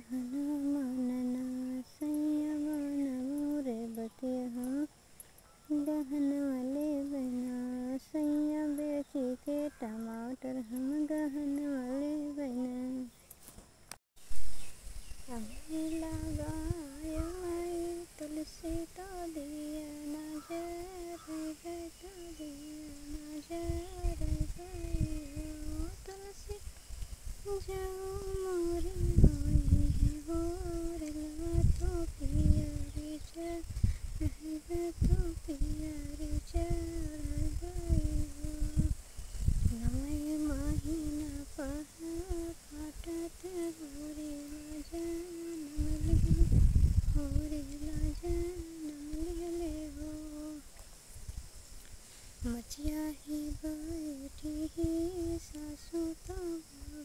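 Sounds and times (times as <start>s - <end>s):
woman humming: 0.0s - 4.9s, 15.3s - 26.6s, 27.5s - 39.0s, 39.6s - 50.7s, 52.4s - 57.0s.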